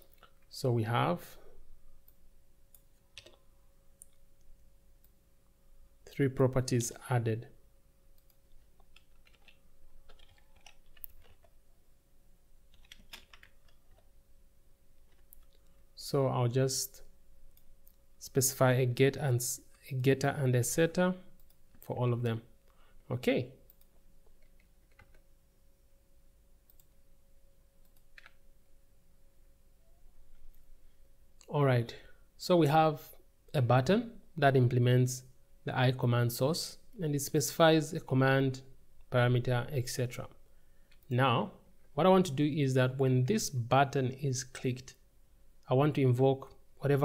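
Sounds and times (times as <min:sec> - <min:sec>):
faint steady hum: 0:00.0 - 0:47.0
computer keyboard keystrokes: 0:08.2 - 0:11.5, 0:12.7 - 0:14.0, 0:23.7 - 0:25.2.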